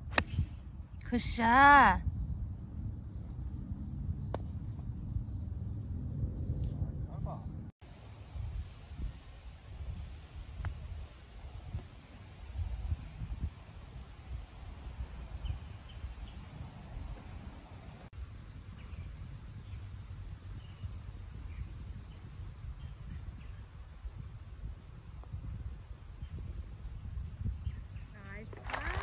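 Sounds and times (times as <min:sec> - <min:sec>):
gusty wind on microphone: 0:00.0 - 0:29.0.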